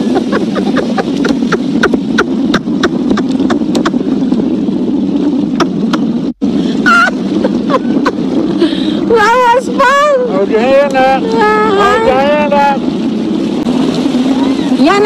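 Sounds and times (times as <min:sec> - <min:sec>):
hull knocking on waves: 0:00.0 - 0:15.0
motorboat engine running: 0:00.0 - 0:15.0
wind buffeting microphone: 0:00.0 - 0:15.0.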